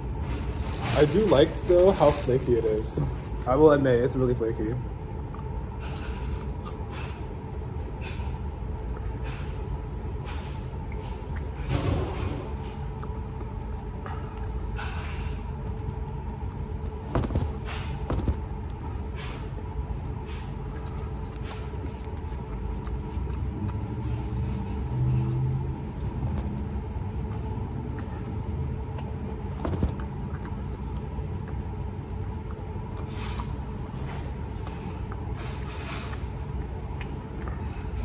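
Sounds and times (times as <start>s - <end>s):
restaurant dining room rumble: 0.0s - 38.0s
clicks and knocks of food handling: 16.9s - 18.8s, 29.4s - 31.6s.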